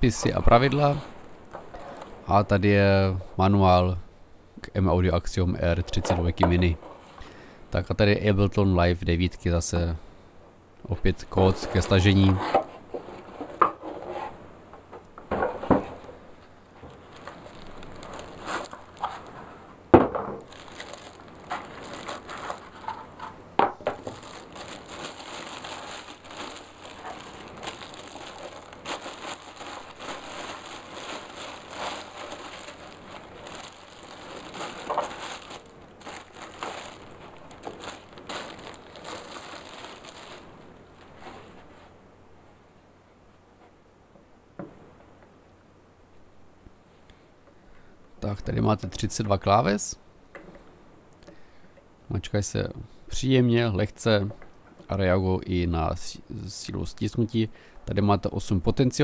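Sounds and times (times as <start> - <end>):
plastic wrapping crinkling: 0.0 - 2.2, 16.8 - 41.9.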